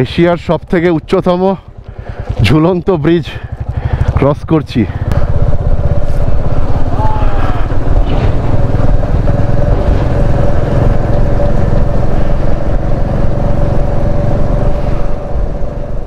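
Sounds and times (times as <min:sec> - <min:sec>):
motorcycle engine hum: 0:00.0 - 0:16.0
wind rumble on microphone: 0:05.0 - 0:16.0.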